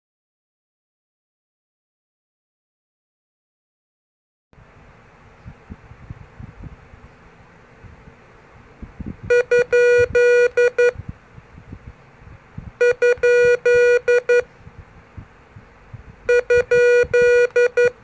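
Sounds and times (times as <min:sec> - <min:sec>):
morse code beeping: 0:09.3 - 0:11.0, 0:12.8 - 0:14.5, 0:16.3 - 0:18.0.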